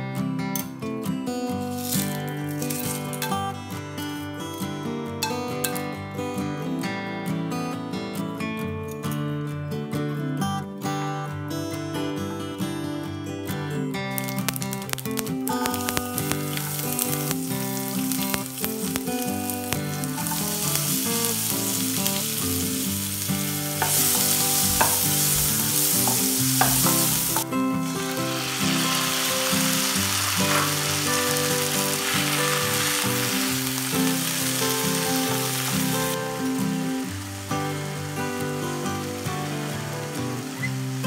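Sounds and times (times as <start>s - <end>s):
garlic and onion sizzling in oil: 1.7s - 3.4s, 14.2s - 41.0s
background music: 12.8s - 41.0s.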